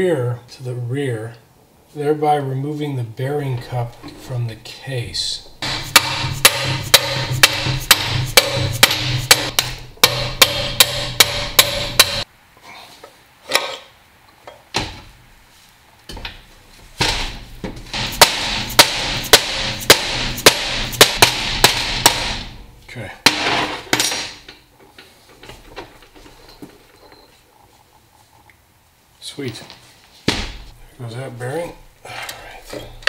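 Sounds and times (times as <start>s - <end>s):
hammer striking metal shaft: 5.6s - 12.3s, 17.0s - 22.6s.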